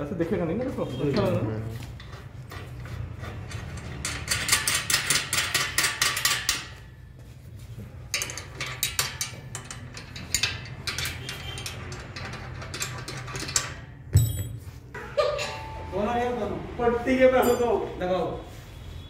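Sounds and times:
spanner clicking and clinking: 3.4s - 6.8s, 8.1s - 14.5s.

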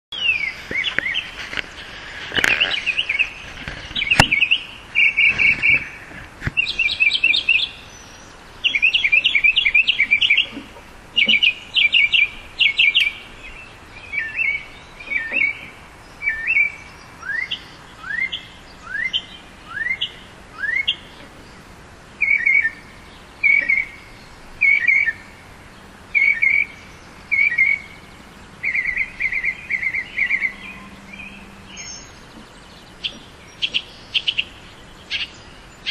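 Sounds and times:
mockingbird singing varied phrases: 6.6s - 21.3s, 22.2s - 25.4s, 26.1s - 35.9s.

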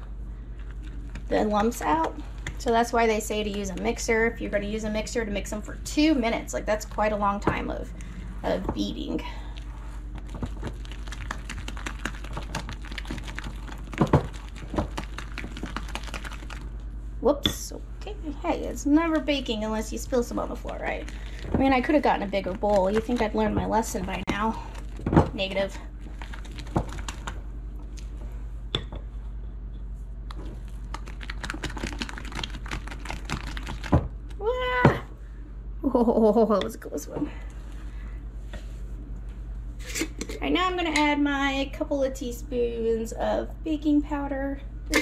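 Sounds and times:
utensil beating batter in glass bowl: 10.1s - 16.7s, 18.9s - 27.4s, 30.9s - 34.1s.

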